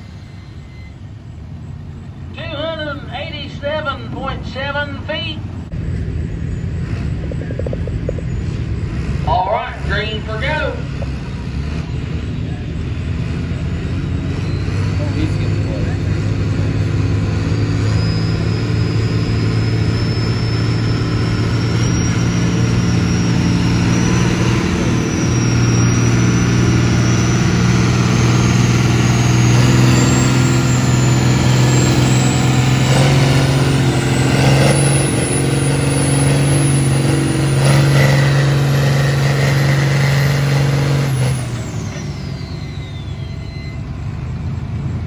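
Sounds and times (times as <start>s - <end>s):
tractor diesel engine under load: 0.0s - 45.0s
high whine: 11.8s - 45.0s.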